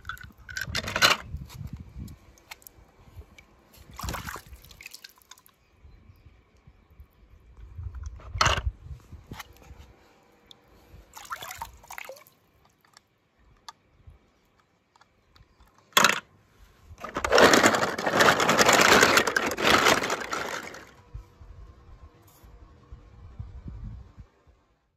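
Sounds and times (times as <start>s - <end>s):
water splashing in pool: 3.9s - 5.5s, 11.1s - 12.4s.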